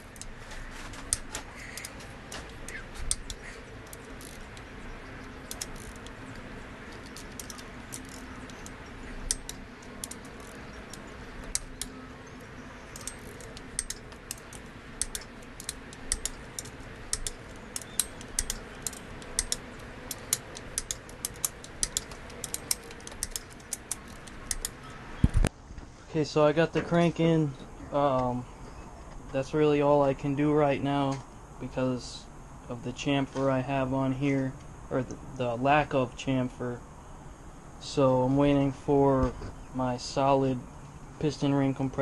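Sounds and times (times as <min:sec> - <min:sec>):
ratchet wrench clicking: 0:01.0 - 0:25.0.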